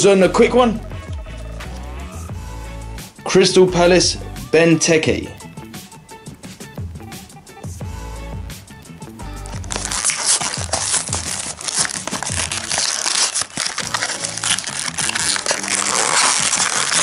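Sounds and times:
background music: 0:00.0 - 0:17.0
blister pack tearing and crinkling: 0:09.4 - 0:17.0.

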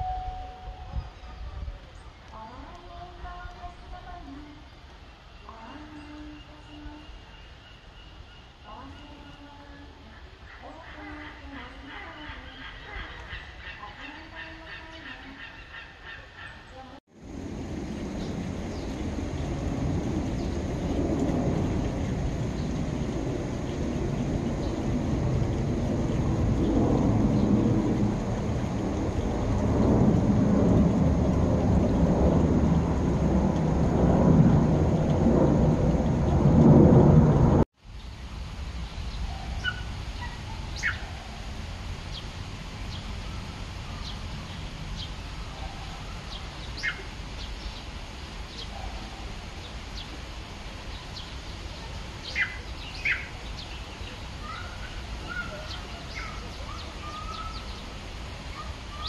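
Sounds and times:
loud low rumbling: 0:17.1 - 0:37.7.

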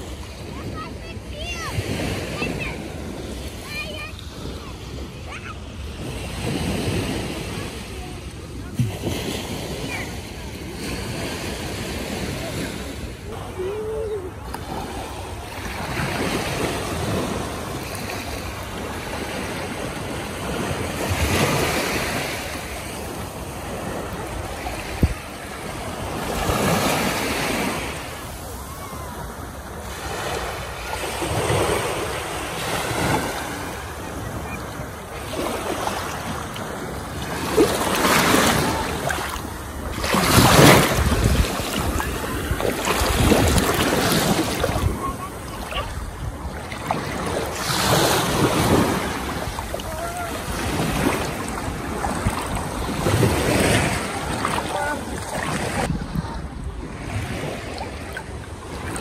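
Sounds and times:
small waves breaking on shore: 0:00.0 - 0:59.0
wind buffeting microphone: 0:36.1 - 0:54.4.

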